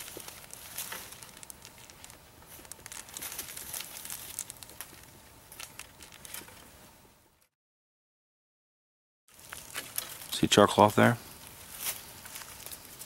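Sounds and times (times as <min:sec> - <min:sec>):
plastic bag crinkling: 0:00.0 - 0:06.7, 0:09.3 - 0:10.6, 0:11.4 - 0:13.0.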